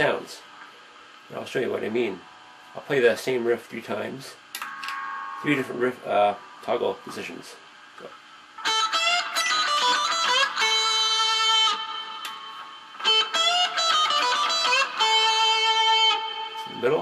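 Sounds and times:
electric guitar riff: 4.6 - 6.7, 8.6 - 17.0.

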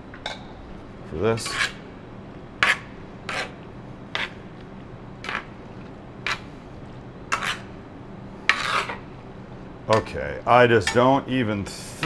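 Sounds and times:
metal spoon scraping skillet: 1.4 - 1.8, 7.3 - 7.7, 8.5 - 9.0.

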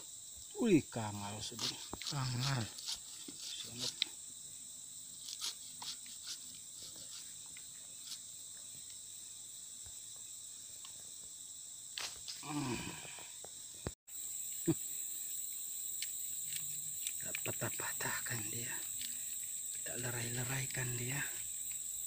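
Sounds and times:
high-pitched insect drone: 0.0 - 22.0
knife cutting through fruit: 1.5 - 4.1, 5.2 - 8.3.

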